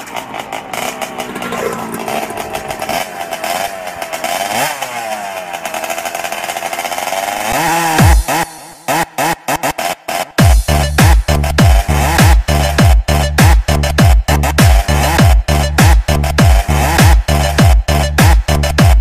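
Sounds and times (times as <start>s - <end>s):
motorcycle engine revving: 0.0s - 19.0s
dubstep music: 10.4s - 19.0s.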